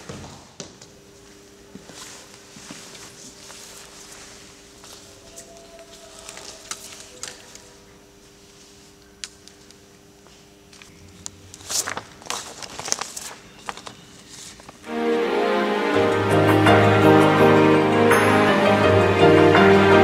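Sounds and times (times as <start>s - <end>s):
paper rustling: 1.8s - 9.6s, 11.4s - 14.9s.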